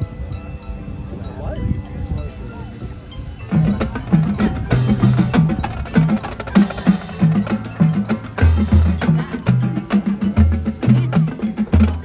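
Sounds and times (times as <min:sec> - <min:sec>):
marching band percussion: 0:03.5 - 0:12.0.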